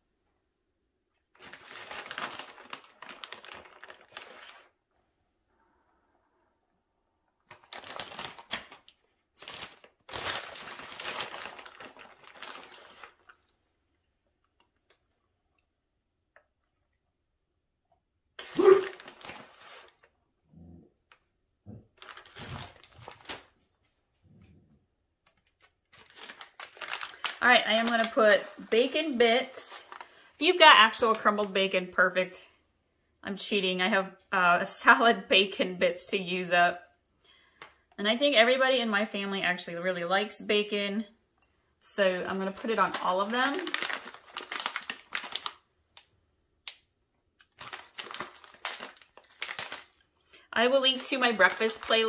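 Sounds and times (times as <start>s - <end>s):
plastic bag crinkling: 1.3s - 4.8s, 7.4s - 13.5s, 18.4s - 20.1s, 22.0s - 23.6s, 25.2s - 31.5s, 42.3s - 46.1s, 47.4s - 52.0s.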